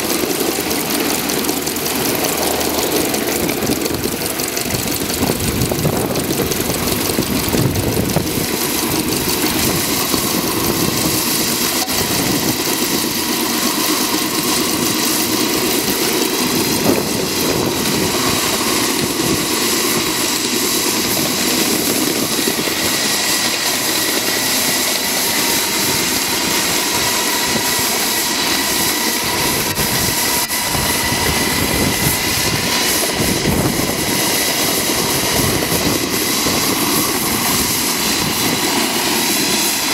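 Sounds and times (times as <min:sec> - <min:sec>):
wheels running on rails: 0:00.0 - 0:39.9.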